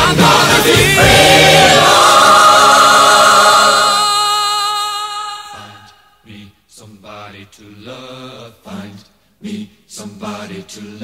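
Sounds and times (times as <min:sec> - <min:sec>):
choir holding a chord: 0:00.0 - 0:04.4.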